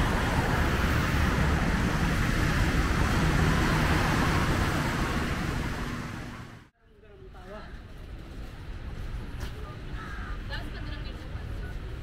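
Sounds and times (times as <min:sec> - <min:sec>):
bus passing: 0:00.0 - 0:06.7
motorbikes passing: 0:00.0 - 0:06.7
traffic on a wet road: 0:00.0 - 0:06.7.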